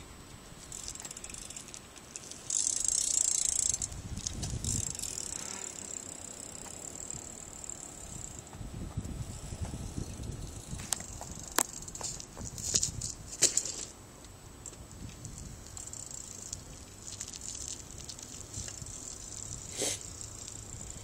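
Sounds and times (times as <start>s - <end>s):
bike rolling on asphalt: 0.6s - 14.0s, 14.6s - 21.0s
bike knocks and clatter: 10.8s - 13.9s.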